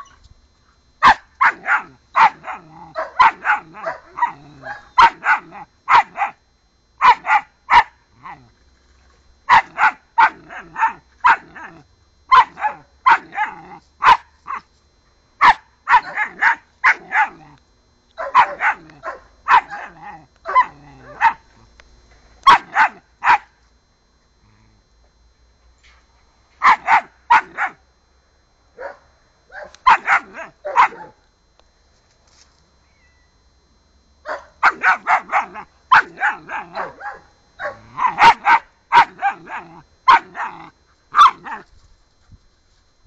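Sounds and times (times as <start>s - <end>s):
puppy barking: 1.0s - 6.4s, 7.0s - 7.9s, 9.5s - 14.6s, 15.4s - 17.5s, 18.2s - 21.4s, 22.5s - 23.5s, 26.6s - 27.8s, 28.8s - 31.2s, 34.3s - 41.6s.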